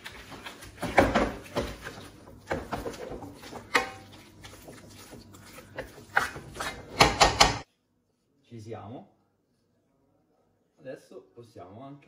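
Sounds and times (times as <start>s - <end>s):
pasta squelching in sauce: 0.0s - 7.2s
wooden spoon knocking on pan: 6.9s - 7.6s.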